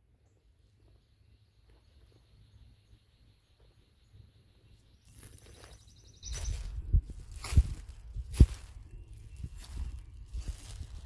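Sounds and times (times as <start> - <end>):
faint high-pitched chirps: 0.2 - 7.0, 8.5 - 11.0
rustling in leaf litter: 5.0 - 11.0.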